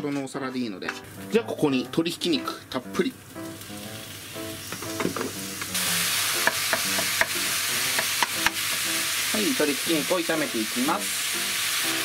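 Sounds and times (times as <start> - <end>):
meat sizzling in a frying pan: 2.4 - 12.0
wooden spatula knocking on pan: 4.7 - 5.4, 6.4 - 8.8.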